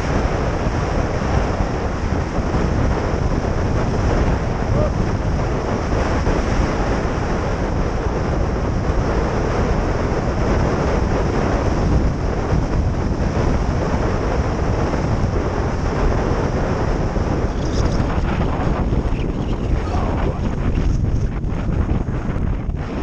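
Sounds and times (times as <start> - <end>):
wind noise on microphone: 0.0 - 23.0.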